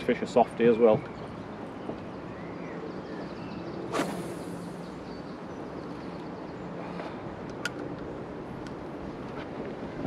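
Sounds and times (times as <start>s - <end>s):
water noise around boat: 0.0s - 10.0s
wind: 0.0s - 10.0s
low hum: 2.1s - 9.2s
short swish: 3.9s - 4.8s.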